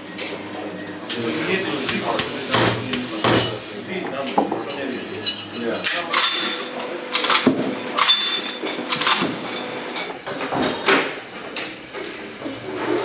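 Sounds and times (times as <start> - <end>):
metal parts clanking: 5.4 - 9.7.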